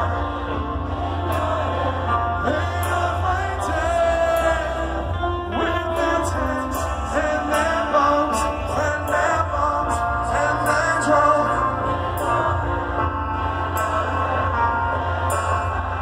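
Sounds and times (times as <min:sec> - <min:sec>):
live heavy rock band: 0:00.0 - 0:16.0.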